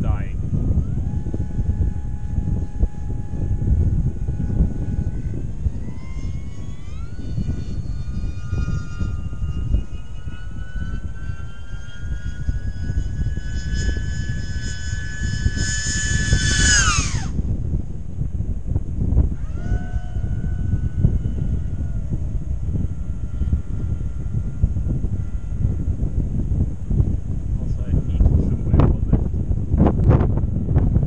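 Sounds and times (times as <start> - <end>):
electric motors and propellers whining: 0.0 - 31.0
wind rumble on microphone: 0.0 - 31.0.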